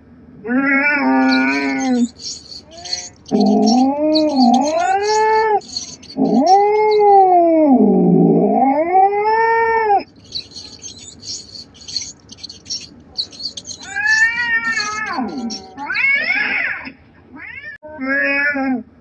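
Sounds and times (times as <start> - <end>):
cat yowling: 0.7 - 7.3, 13.8 - 16.1
faint rapid high ticking: 1.2 - 7.4, 10.1 - 15.8.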